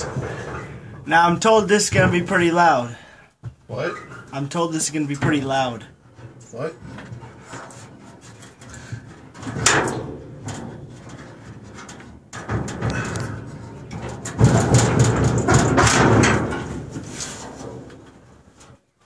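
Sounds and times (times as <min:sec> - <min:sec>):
metal machinery clunk: 0:00.0 - 0:02.5, 0:08.4 - 0:18.2
rough metal scraping rumble: 0:00.0 - 0:03.1, 0:03.7 - 0:18.9.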